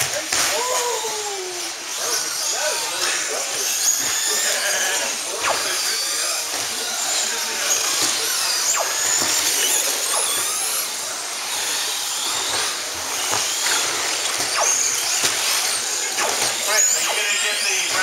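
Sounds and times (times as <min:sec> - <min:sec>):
remote control cars motors whining: 0:00.0 - 0:18.0.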